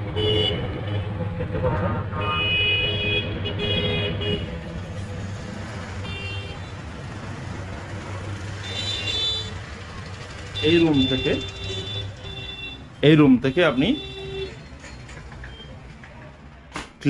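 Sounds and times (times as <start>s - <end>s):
traffic engines running: 0.0s - 17.0s
vehicle horns honking: 0.2s - 1.1s, 2.2s - 4.6s, 6.0s - 6.8s, 8.6s - 9.8s, 10.4s - 14.6s.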